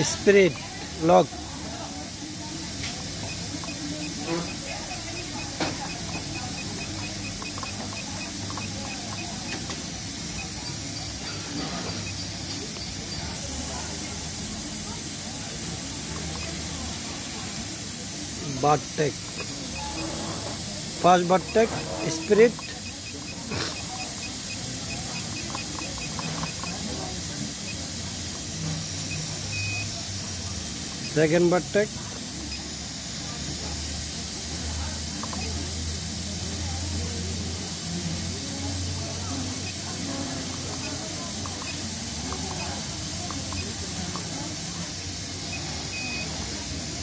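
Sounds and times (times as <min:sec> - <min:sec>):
steady hiss: 0:00.0 - 0:47.0
control panel beeping: 0:03.0 - 0:13.4, 0:16.1 - 0:16.8, 0:18.5 - 0:28.0, 0:29.0 - 0:29.9, 0:35.2 - 0:35.7, 0:39.5 - 0:46.6
control panel ticking: 0:03.2 - 0:11.2, 0:21.1 - 0:26.8.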